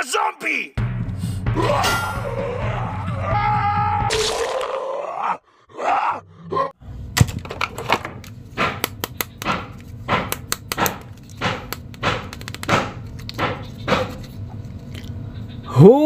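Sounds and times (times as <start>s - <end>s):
plastic figures clicking together: 10.3s - 13.5s.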